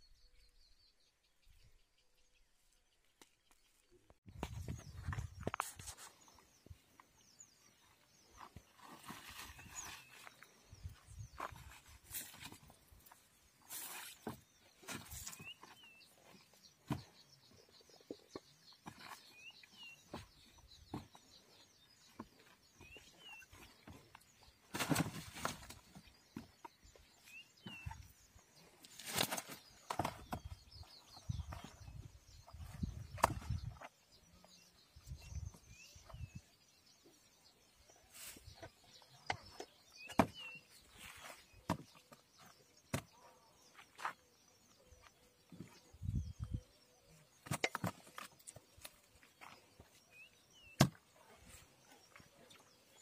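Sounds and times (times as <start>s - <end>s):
faint high bird chirping: 0.0s - 53.0s.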